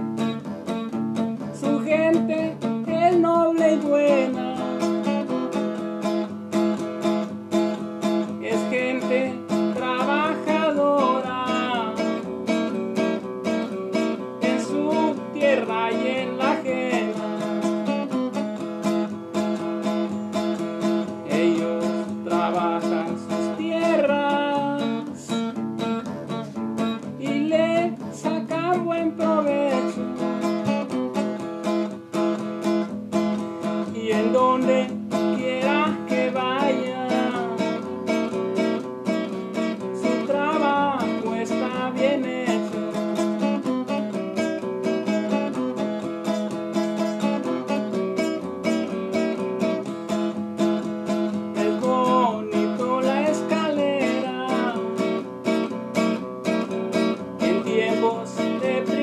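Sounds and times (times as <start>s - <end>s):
acoustic guitar strumming: 0.0s - 59.0s.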